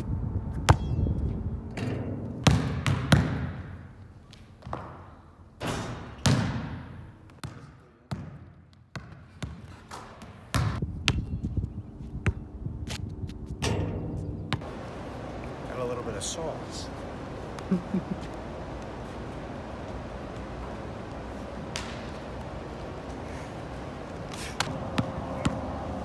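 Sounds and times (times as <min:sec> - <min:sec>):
basketball bouncing on court: 0:02.4 - 0:03.9, 0:04.6 - 0:11.3, 0:21.1 - 0:22.6, 0:24.6 - 0:25.8.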